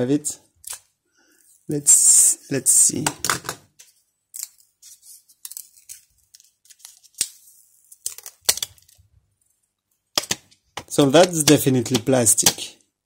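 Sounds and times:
plastic film peeling crackle: 0:04.4 - 0:09.5.

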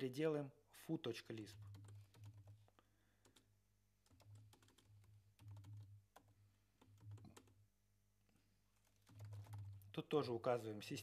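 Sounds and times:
faint computer keyboard typing: 0:01.4 - 0:07.6, 0:08.7 - 0:10.0.

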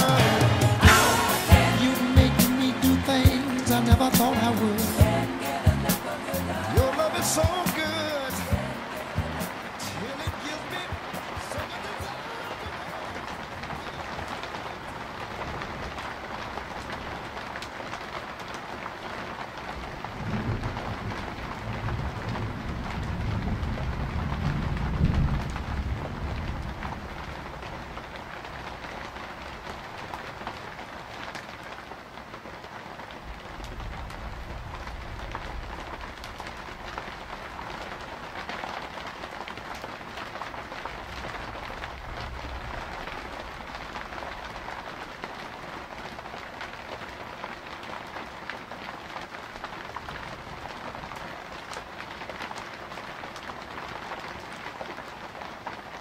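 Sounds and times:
steady rain falling: 0:00.0 - 0:56.0
low thunder rumble: 0:20.1 - 0:27.9, 0:33.3 - 0:37.5.

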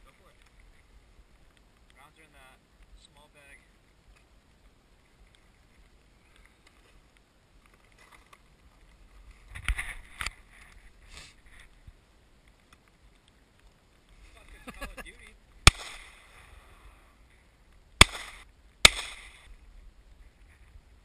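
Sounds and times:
faint wind noise: 0:00.0 - 0:21.0.

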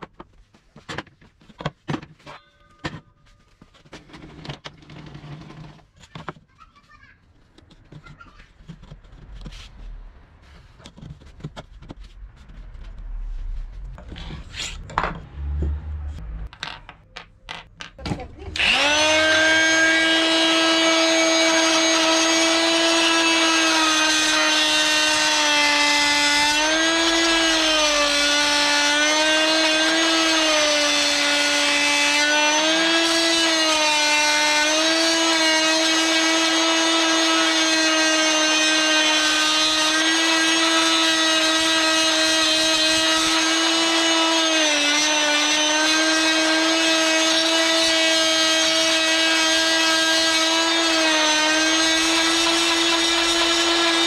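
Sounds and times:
power tool high whine: 0:18.5 - 0:54.0.

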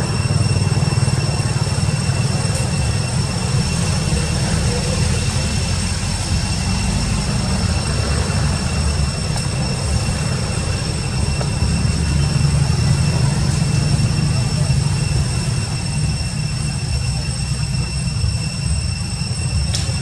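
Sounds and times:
high-pitched whining tones: 0:00.0 - 0:20.0.

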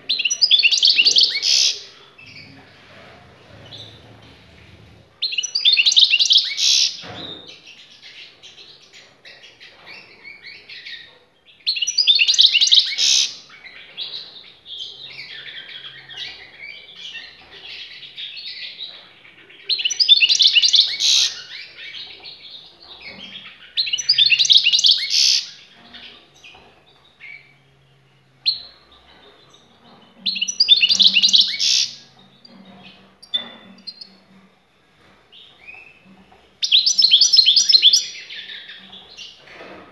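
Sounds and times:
goldfinch twittering song: 0:28.4 - 0:34.2, 0:36.6 - 0:39.4.

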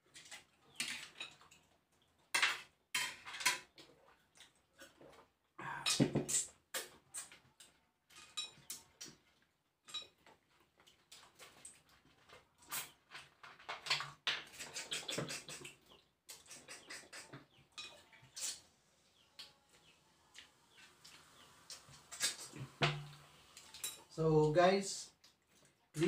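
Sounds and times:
lip smacking and sucking: 0:14.5 - 0:17.6, 0:18.3 - 0:18.7, 0:21.7 - 0:22.8.

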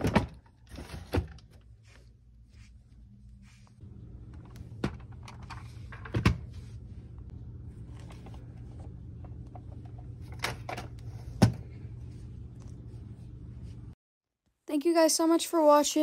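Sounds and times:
steady low hum: 0:01.2 - 0:14.0.

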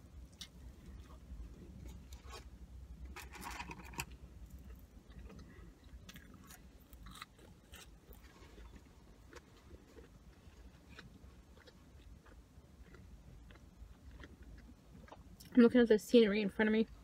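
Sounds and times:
chewing and biting: 0:03.3 - 0:15.5.

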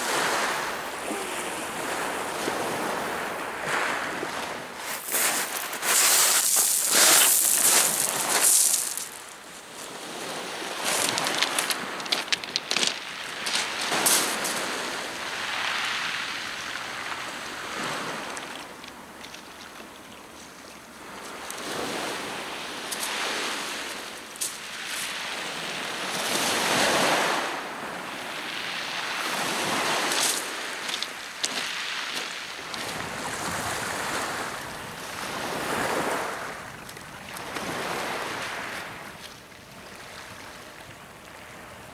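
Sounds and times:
waves washing on pebble beach: 0:00.0 - 0:41.9
stones clicking in the wash: 0:05.0 - 0:09.3, 0:10.6 - 0:14.6, 0:30.0 - 0:33.0.

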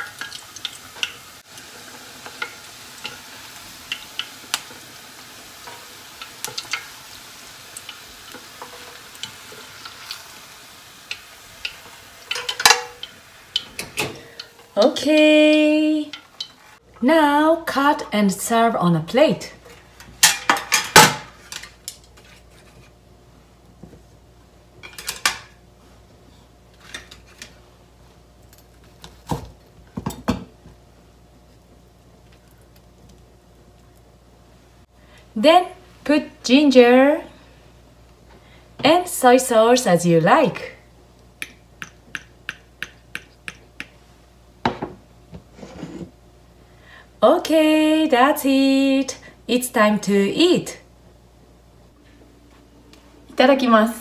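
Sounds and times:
bottle knocking on countertop: 0:44.6 - 0:45.0.

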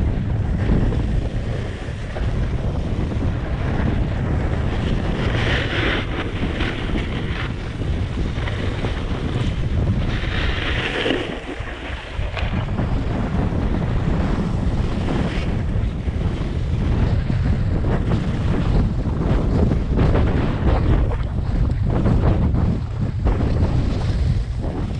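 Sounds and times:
wind rumbling on microphone: 0:00.0 - 0:24.9
snowboard edges scraping snow: 0:00.5 - 0:17.4.

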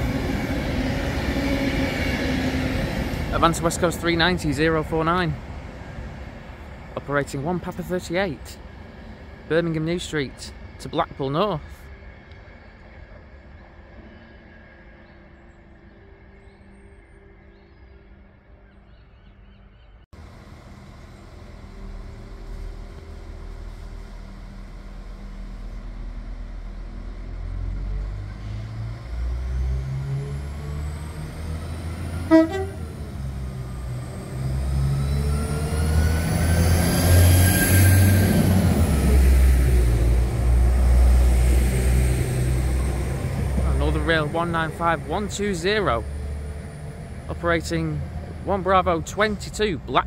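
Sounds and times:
train transmission whine: 0:00.0 - 0:18.7, 0:20.2 - 0:50.0
diesel train engines: 0:00.0 - 0:50.0
train horn toot: 0:32.2 - 0:33.1.

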